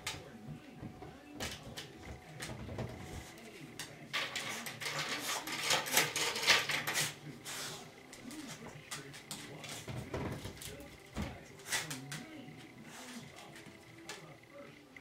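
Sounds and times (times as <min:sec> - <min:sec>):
chain door guard rattling: 0:04.1 - 0:07.2.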